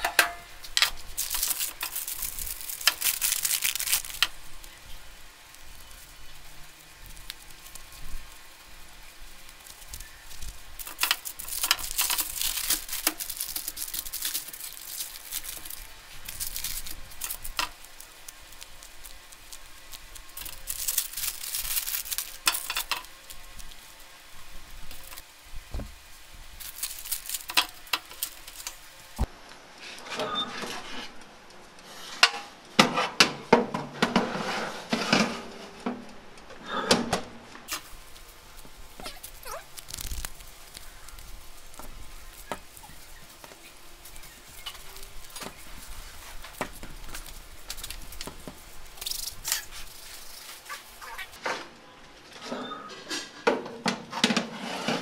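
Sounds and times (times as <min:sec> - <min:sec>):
paper and plastic rustling: 0:00.6 - 0:29.3, 0:37.7 - 0:51.4.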